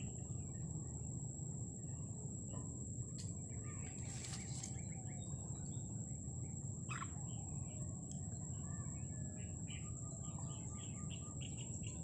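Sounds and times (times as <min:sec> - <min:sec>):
small birds chirping: 0:03.3 - 0:12.0.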